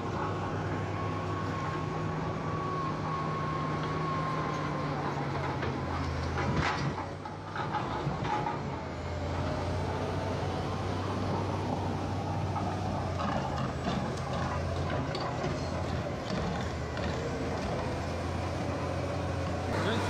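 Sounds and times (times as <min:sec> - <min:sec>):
bulldozer diesel engine running: 0:00.0 - 0:20.0.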